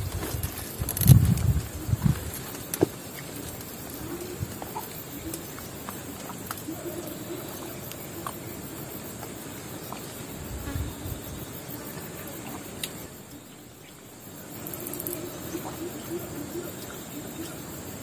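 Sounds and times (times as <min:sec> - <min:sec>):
insects chirring: 0:00.0 - 0:18.0
small ticks and knocks: 0:00.1 - 0:04.0.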